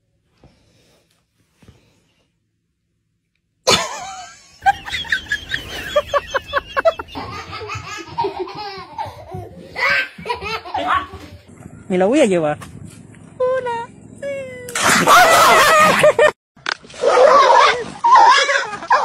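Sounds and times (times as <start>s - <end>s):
person laughing: 3.7s - 11.0s, 14.7s - 16.4s.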